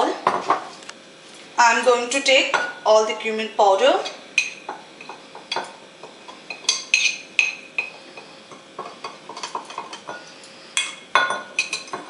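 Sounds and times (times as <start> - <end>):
spoon clinking against a bowl: 4.4 - 12.0.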